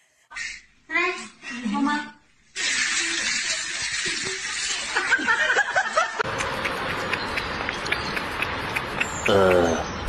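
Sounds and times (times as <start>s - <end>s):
people laughing: 4.1s - 7.2s.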